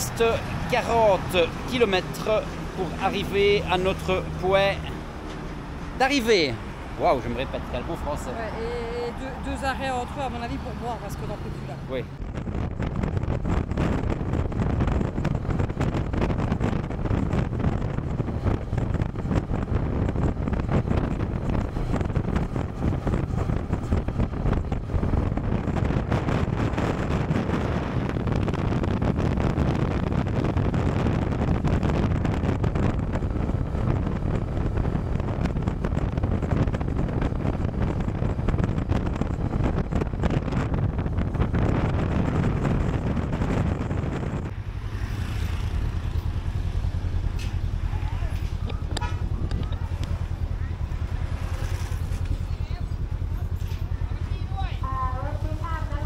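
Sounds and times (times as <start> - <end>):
road noise: 0.0 - 56.0
wind buffeting microphone: 0.0 - 56.0
motorcycle engine: 12.0 - 56.0.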